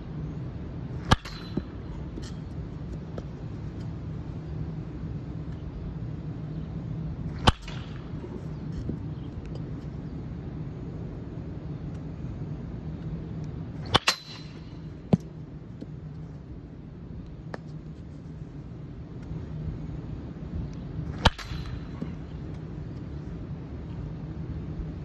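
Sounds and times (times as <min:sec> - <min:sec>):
steady low hum: 0:00.0 - 0:25.0
baseball bat cracking ball: 0:00.9 - 0:03.8, 0:07.3 - 0:09.6, 0:13.8 - 0:16.1, 0:21.1 - 0:23.1.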